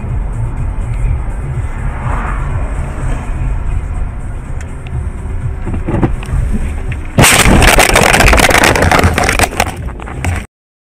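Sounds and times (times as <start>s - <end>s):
road rumble inside car: 0.0s - 10.5s
loud crackling noise burst: 7.2s - 9.9s.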